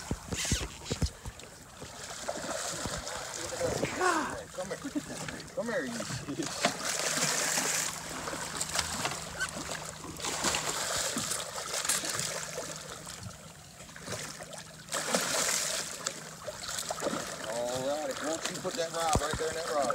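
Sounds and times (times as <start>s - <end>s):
fish thrashing and water splashing: 0.0s - 19.9s.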